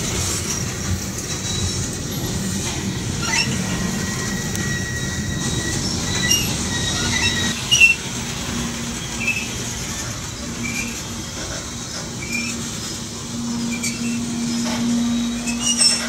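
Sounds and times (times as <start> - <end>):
train wheels rumbling on rails: 0.0 - 16.0
high metallic squeals: 0.3 - 11.3, 11.9 - 16.0
brake screech: 3.2 - 8.1, 13.4 - 16.0.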